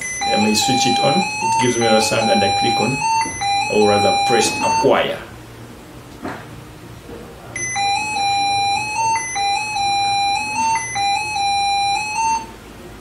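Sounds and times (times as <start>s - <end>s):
laptop error beeps: 0.0s - 5.0s, 7.6s - 12.5s.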